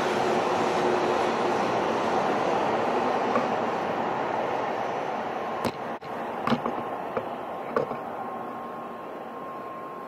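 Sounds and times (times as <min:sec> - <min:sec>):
rushing noise of passing train: 0:00.0 - 0:10.0
faint steady tone: 0:04.8 - 0:10.0.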